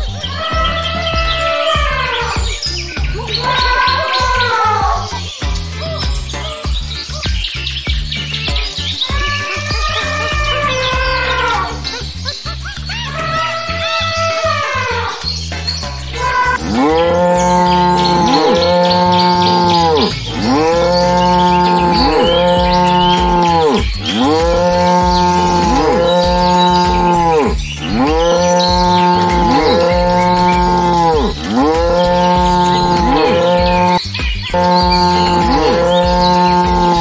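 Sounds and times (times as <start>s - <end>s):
cow mooing: 16.2s - 37.0s.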